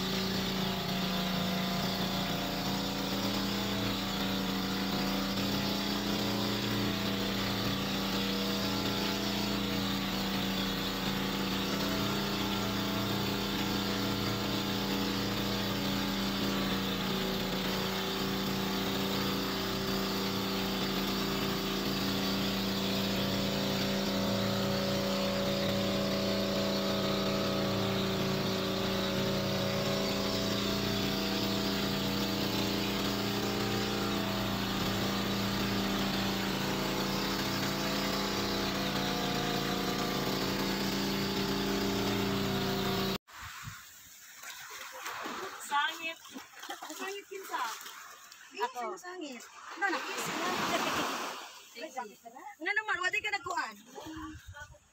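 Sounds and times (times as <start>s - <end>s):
boat engine running: 0.0s - 43.2s, 49.8s - 54.8s.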